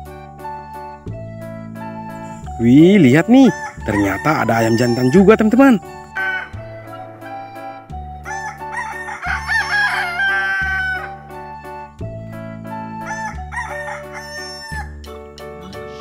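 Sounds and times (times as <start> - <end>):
background music with bass line: 0.0 - 16.0
rooster crowing: 3.4 - 7.3, 8.2 - 11.2, 13.0 - 15.0.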